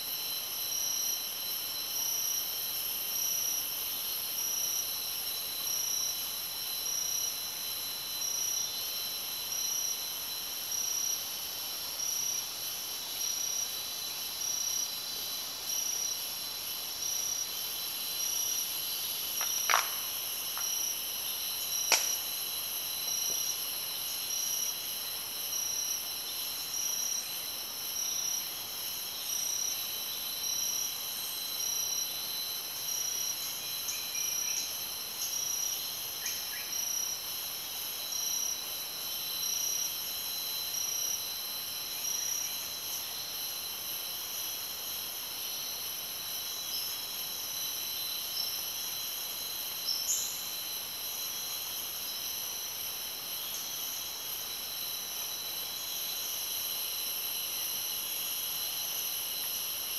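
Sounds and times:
insects shrilling: 0:17.6 - 0:23.3
sharp click: 0:21.9 - 0:22.2.

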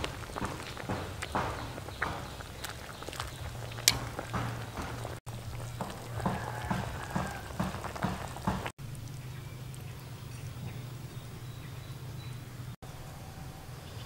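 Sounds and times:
stew bubbling: 0:00.0 - 0:11.5.

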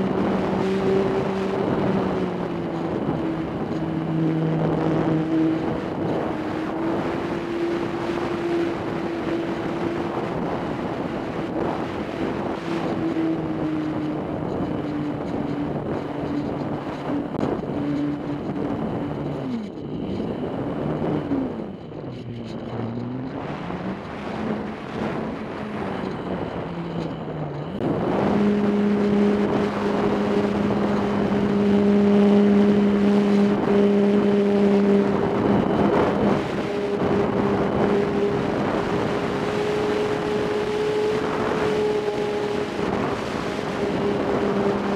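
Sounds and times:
model airplane motor humming: 0:00.0 - 0:44.9
wind noise on microphone: 0:00.0 - 0:44.9.

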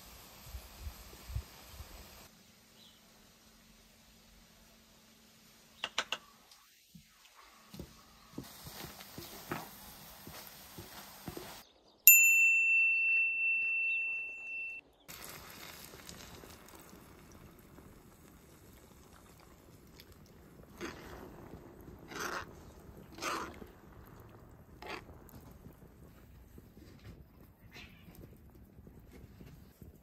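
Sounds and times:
spoon stirring in a skillet: 0:07.7 - 0:11.6, 0:15.1 - 0:27.2
clear bell-like ding: 0:12.1 - 0:14.8
creamer pouring: 0:15.1 - 0:22.6
spoon scraping: 0:20.7 - 0:23.6, 0:24.2 - 0:25.1.

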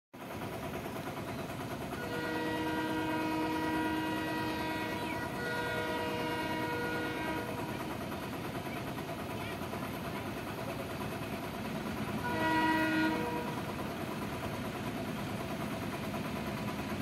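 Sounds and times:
locomotive horn: 0:02.0 - 0:07.8, 0:12.2 - 0:13.7.

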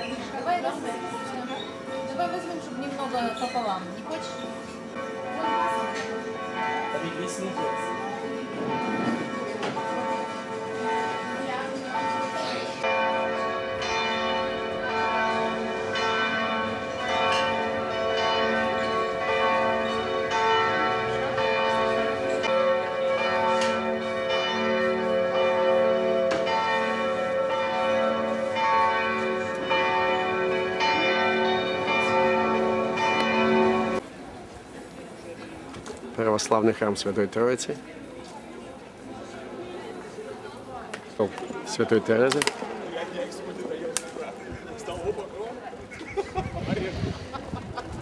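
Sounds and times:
church bells pealing: 0:00.0 - 0:34.0.

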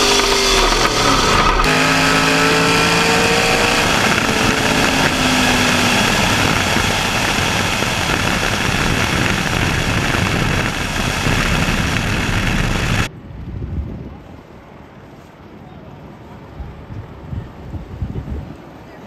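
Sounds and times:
drag race car engine running: 0:00.0 - 0:13.1.

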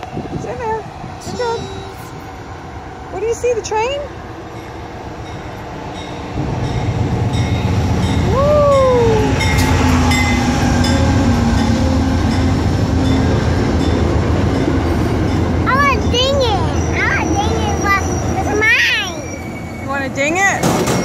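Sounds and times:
train rumbling: 0:00.0 - 0:21.0
child calling: 0:15.6 - 0:19.4.

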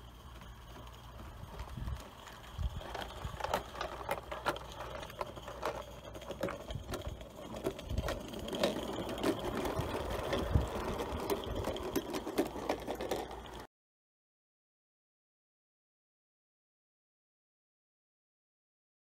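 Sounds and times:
model train wheels clicking on rails: 0:00.0 - 0:13.7.

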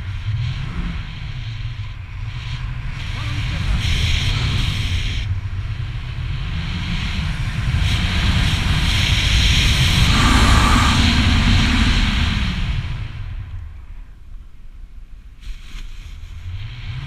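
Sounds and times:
wind buffeting microphone: 0:07.6 - 0:13.8.

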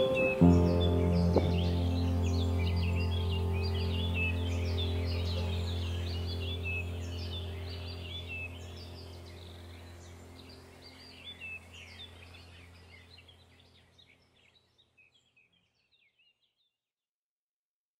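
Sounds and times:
low steady hum: 0:00.0 - 0:14.5
birds chirping: 0:00.0 - 0:16.5.

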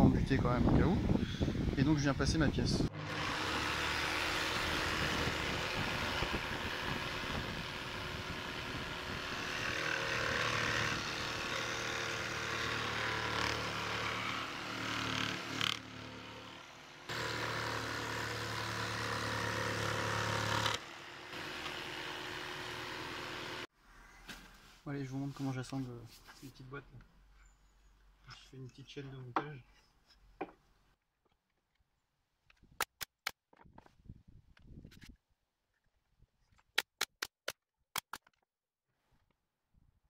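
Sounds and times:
jigsaw cutting wood: 0:02.9 - 0:23.7.

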